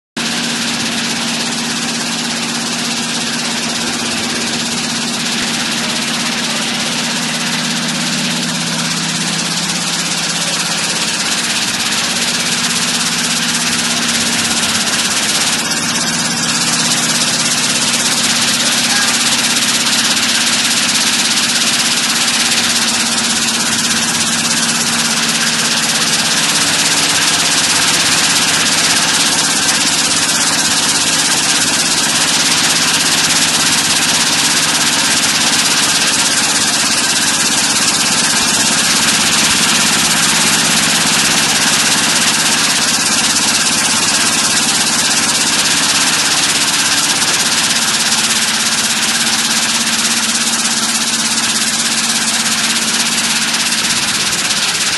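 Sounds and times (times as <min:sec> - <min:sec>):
vibrating elevator machine hum: 0:00.2 - 0:54.9.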